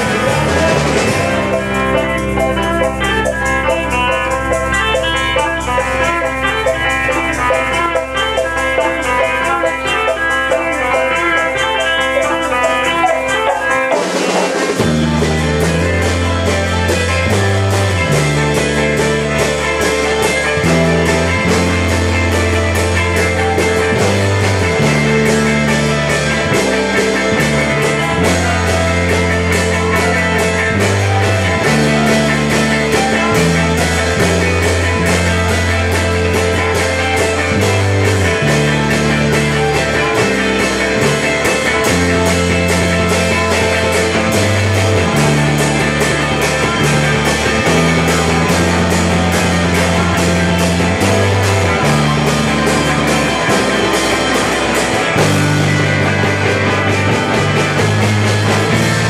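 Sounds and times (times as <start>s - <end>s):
low bass line: 0.0s - 13.4s, 14.8s - 59.0s
drum kit beat: 0.0s - 59.0s
electric guitars: 0.0s - 59.0s.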